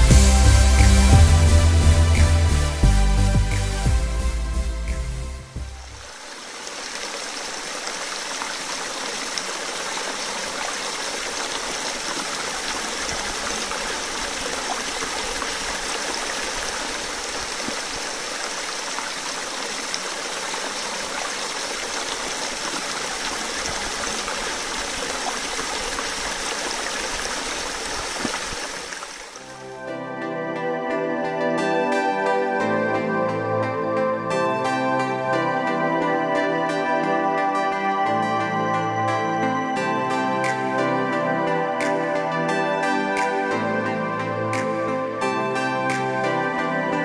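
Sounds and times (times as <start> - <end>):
stream running over stones: 5.6 - 29.7.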